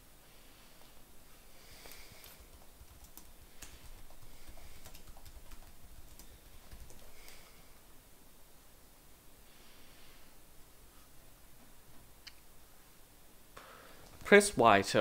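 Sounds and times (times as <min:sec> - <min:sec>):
low background hum: 0:00.0 - 0:15.0
computer keyboard clicks: 0:01.8 - 0:07.5.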